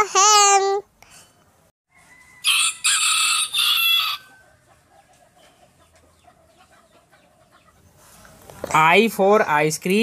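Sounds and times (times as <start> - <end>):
rooster crowing: 1.9 - 4.7.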